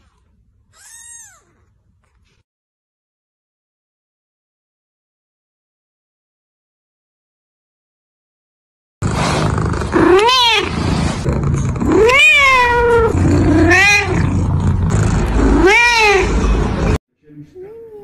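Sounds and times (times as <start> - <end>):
cat meowing: 0.7 - 1.6, 10.0 - 10.7, 11.8 - 14.3, 15.4 - 16.4.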